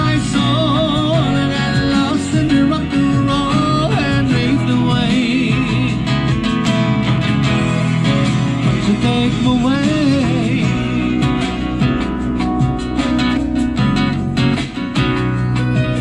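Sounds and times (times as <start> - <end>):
man singing: 0.0 - 6.5, 8.6 - 12.1
acoustic guitar strummed: 0.0 - 16.0.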